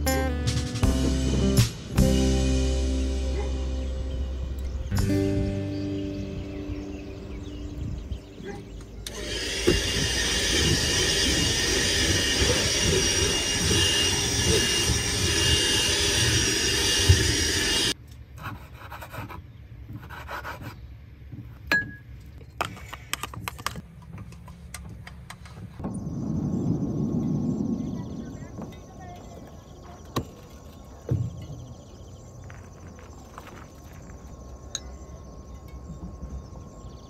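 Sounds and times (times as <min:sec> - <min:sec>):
handheld vacuum cleaner whining: 0:09.0 - 0:18.0
cups and dishes clinking: 0:21.6 - 0:22.1.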